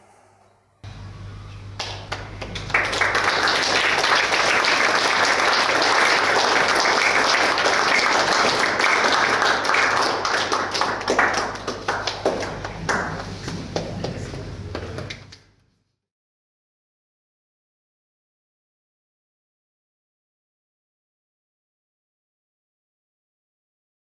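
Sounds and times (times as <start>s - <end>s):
audience applauding: 1.8s - 15.4s.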